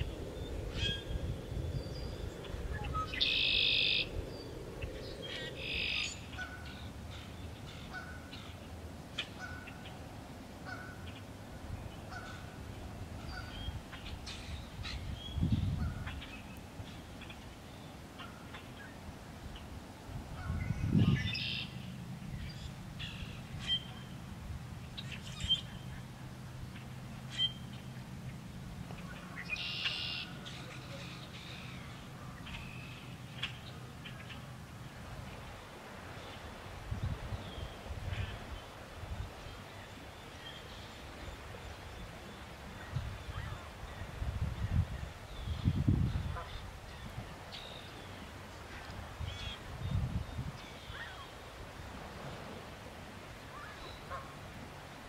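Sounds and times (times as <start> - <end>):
blackbird song: 0.0 - 10.0, 13.2 - 19.7, 20.4 - 24.2, 24.8 - 34.5, 39.4 - 51.4
low steady rumble: 0.0 - 51.2
short repeated bird calls: 2.8 - 4.2, 29.1 - 34.4.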